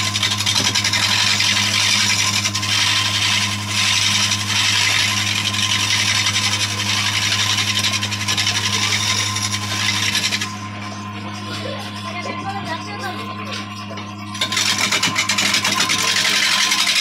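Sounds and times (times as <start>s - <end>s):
tool cutting wood with rough hiss: 0.0s - 10.5s, 14.4s - 17.0s
motor humming: 0.0s - 17.0s.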